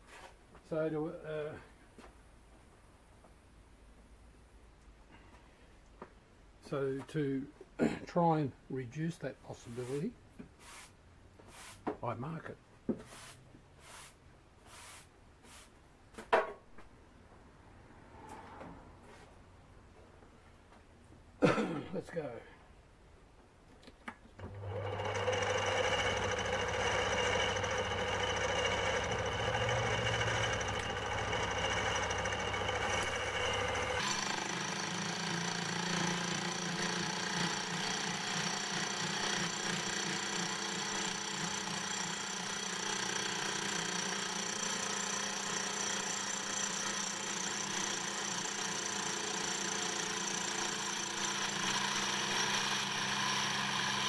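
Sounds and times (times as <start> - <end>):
cordless drill turning feed: 24.4 - 54.0
metal lathe running: 24.4 - 54.0.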